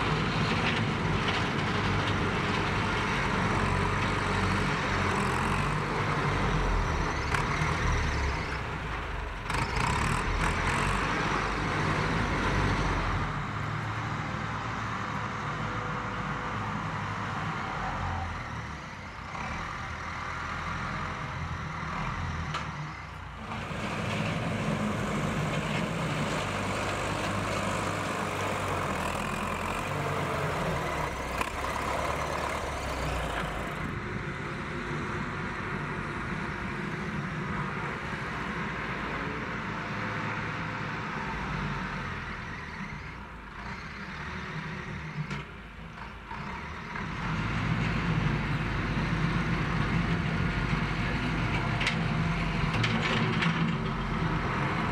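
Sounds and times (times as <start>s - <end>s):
tractor diesel engine running: 0.0s - 39.2s.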